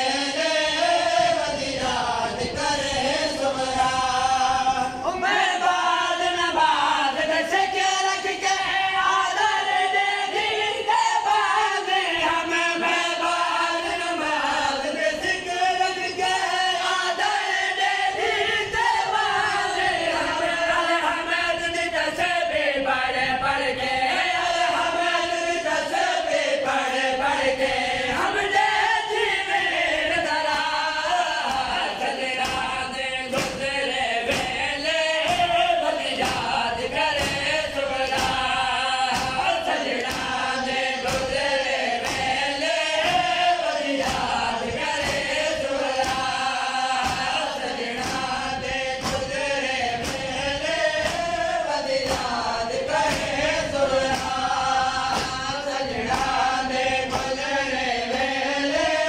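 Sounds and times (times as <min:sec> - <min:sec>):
men chanting through loudspeakers: 0:00.0 - 0:59.0
hands slapping chests: 0:31.4 - 0:57.5.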